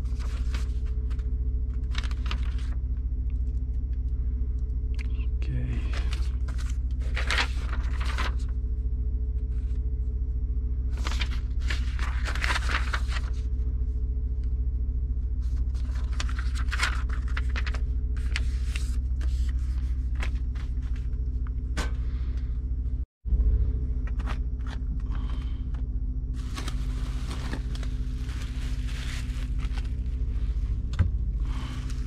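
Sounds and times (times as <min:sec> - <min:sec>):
paper rustling: 0:00.0 - 0:02.8, 0:05.9 - 0:08.5, 0:10.9 - 0:13.5, 0:15.4 - 0:21.4, 0:26.4 - 0:30.9
steady low hum: 0:00.0 - 0:32.0.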